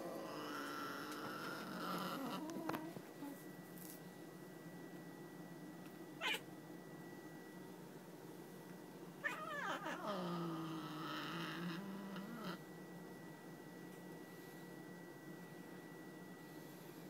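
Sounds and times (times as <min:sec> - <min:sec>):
cat yowling and growling: 0:06.2 - 0:06.5, 0:09.2 - 0:12.6.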